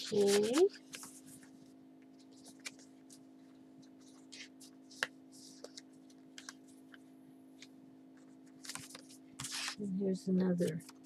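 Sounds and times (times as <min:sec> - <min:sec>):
paper and card rustling: 0:00.0 - 0:01.6, 0:02.2 - 0:07.0, 0:07.6 - 0:09.9
faint low hum: 0:00.0 - 0:11.0.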